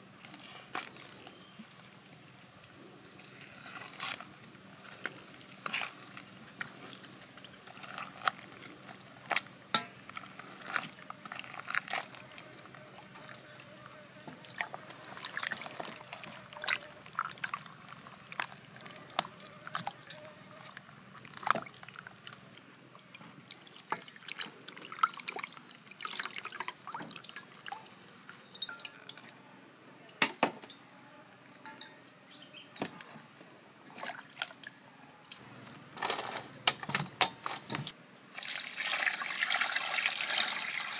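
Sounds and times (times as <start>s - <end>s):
water splashing and dripping: 14.3s - 29.3s.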